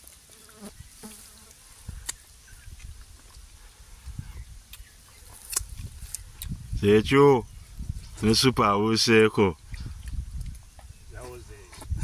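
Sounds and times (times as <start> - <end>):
fly buzzing: 0.3 - 1.6
mouth smacks chewing: 9.6 - 10.9.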